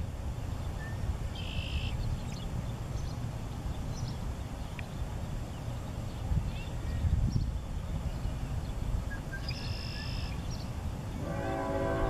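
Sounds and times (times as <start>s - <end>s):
faint bird chirps: 0.7s - 3.2s, 5.5s - 10.7s.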